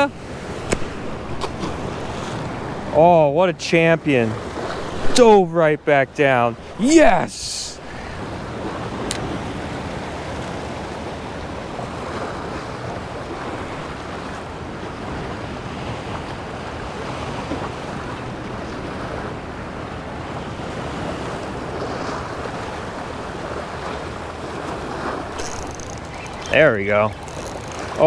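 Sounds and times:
small waves splashing against rocks: 0:00.0 - 0:02.8, 0:20.7 - 0:28.0
wind rumbling on microphone: 0:06.6 - 0:28.0.

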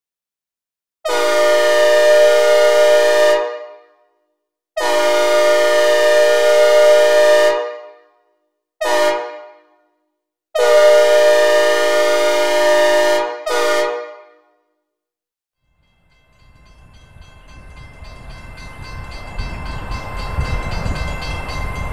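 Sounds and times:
synthesized train horn blasts: 0:01.1 - 0:04.0, 0:04.8 - 0:08.1, 0:08.8 - 0:10.0, 0:10.6 - 0:14.5.

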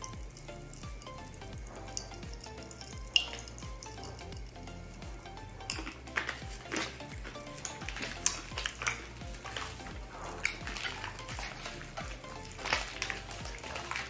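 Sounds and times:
plastic wrappers crinkling: 0:00.0 - 0:14.0
packets tearing open: 0:05.8 - 0:14.0.

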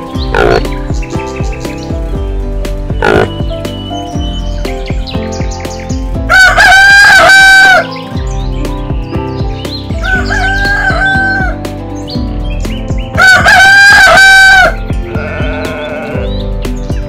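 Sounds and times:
music with steady beat: 0:00.0 - 0:06.9, 0:07.8 - 0:17.0
rooster crowing: 0:06.3 - 0:07.9, 0:10.0 - 0:11.6, 0:13.2 - 0:14.8.

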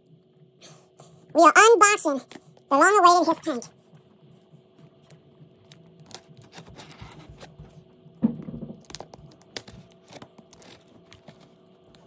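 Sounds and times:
cardboard box rustling and scraping: 0:06.4 - 0:07.7
knock on cardboard box: 0:08.2 - 0:08.9.

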